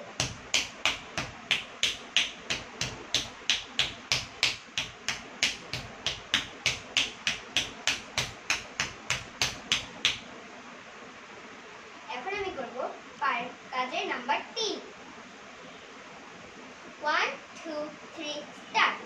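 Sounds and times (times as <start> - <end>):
bare feet stamping on tiled floor: 0.0 - 10.2.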